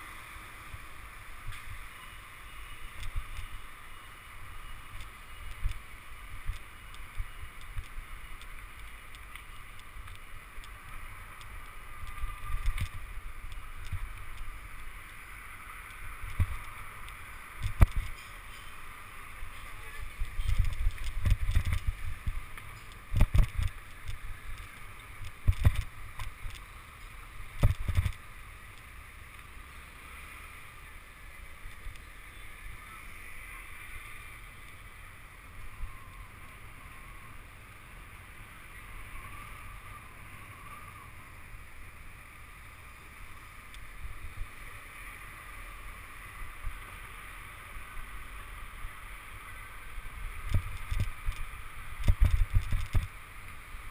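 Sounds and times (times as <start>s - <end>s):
bicycle road rumble: 0.0s - 53.9s
wind on microphone: 4.5s - 15.0s, 15.6s - 26.6s, 49.5s - 53.9s.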